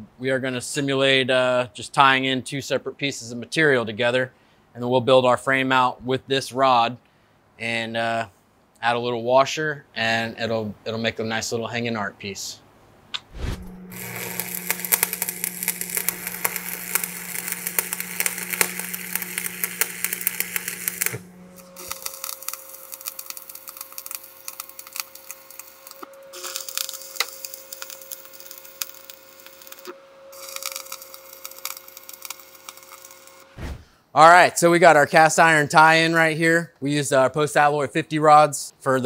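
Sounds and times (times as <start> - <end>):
welding arc crackling: 13.2 - 33.8
steady hum: 13.2 - 34.0.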